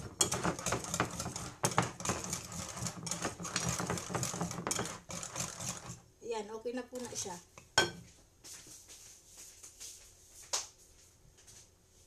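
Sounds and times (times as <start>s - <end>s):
whisk clicking against glass bowl: 0.0s - 6.0s.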